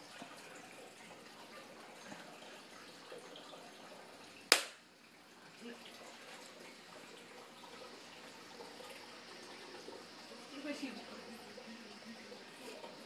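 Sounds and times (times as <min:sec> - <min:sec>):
sharp click: 0:04.5 - 0:04.8.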